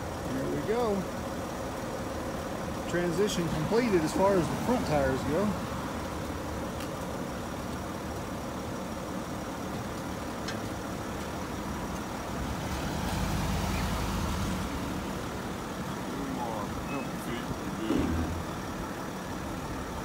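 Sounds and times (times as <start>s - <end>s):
van engine running at low speed: 0.0s - 20.0s.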